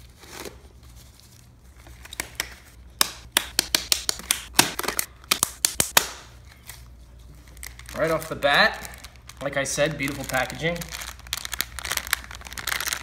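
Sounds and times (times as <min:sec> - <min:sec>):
latex gloves rustling: 0:00.0 - 0:13.0
latex gloves snapping: 0:02.1 - 0:06.3.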